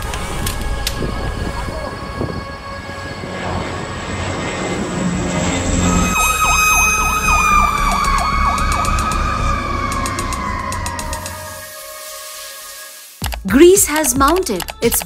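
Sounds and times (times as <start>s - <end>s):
fire engine siren wailing: 0.0s - 13.1s.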